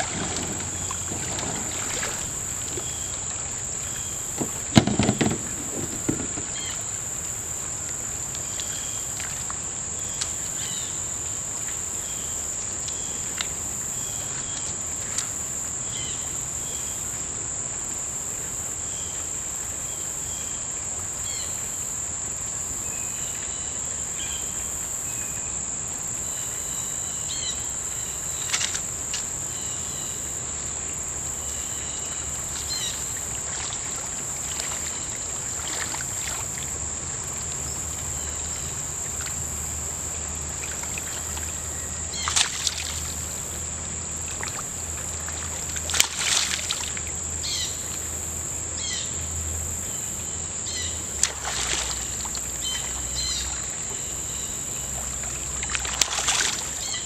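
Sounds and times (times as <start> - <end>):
insects buzzing: 0.0 - 57.0.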